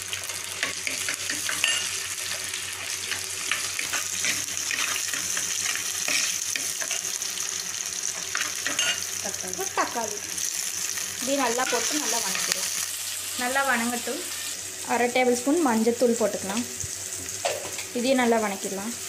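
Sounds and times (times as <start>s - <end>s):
food sizzling in hot oil: 0.0s - 19.0s
steel spoon scraping pot: 8.6s - 9.0s.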